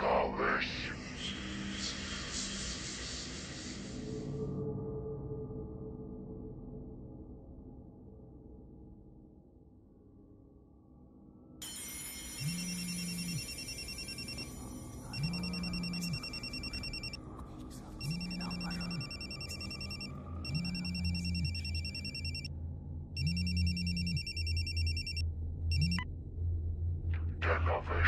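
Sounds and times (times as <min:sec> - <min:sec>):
low hum: 0:11.6 - 0:28.0
phone ringing electronic trill: 0:12.1 - 0:17.2, 0:18.0 - 0:22.5, 0:23.2 - 0:26.0.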